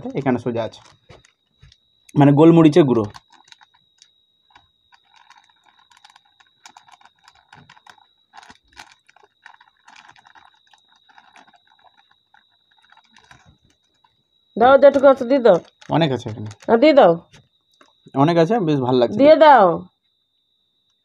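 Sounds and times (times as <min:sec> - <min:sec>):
packet crinkling: 0:00.0 - 0:02.2, 0:02.9 - 0:14.2, 0:14.9 - 0:17.9
faint high-pitched whine: 0:00.0 - 0:21.0.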